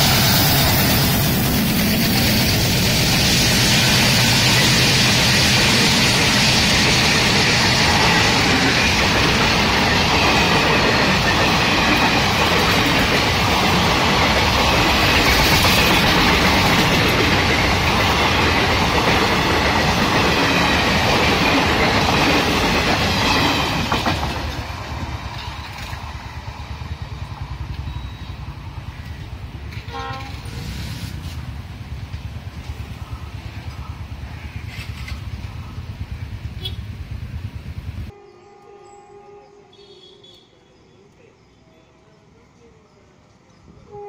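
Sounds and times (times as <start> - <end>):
train wheels clickety-clack: 0.0 - 38.1
faint train horn: 29.7 - 30.8, 36.5 - 37.0, 38.1 - 43.0, 43.8 - 44.0.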